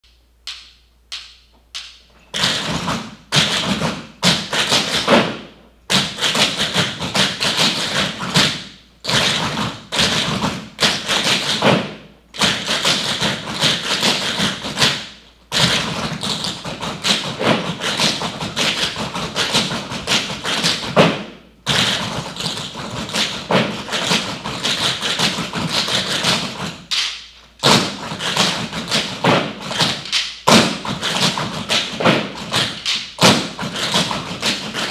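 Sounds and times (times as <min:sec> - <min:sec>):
tap shoes on wooden floor: 0:15.6 - 0:26.9, 0:27.6 - 0:34.9.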